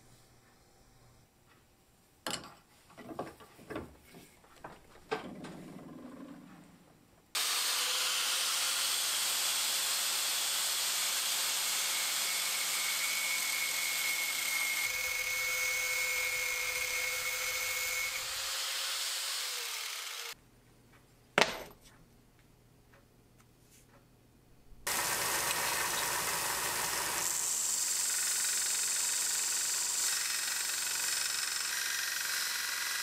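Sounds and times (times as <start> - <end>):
angle grinder grinding steel: 7.4 - 20.4, 25.0 - 33.0.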